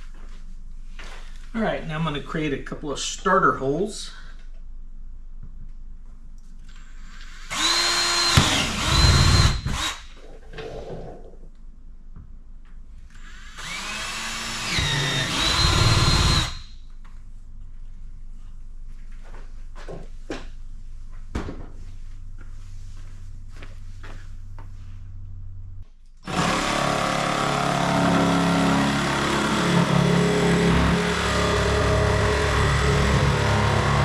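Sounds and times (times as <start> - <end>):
cordless drill boring through plastic: 7.2 - 10.0, 13.1 - 16.7, 26.2 - 34.0.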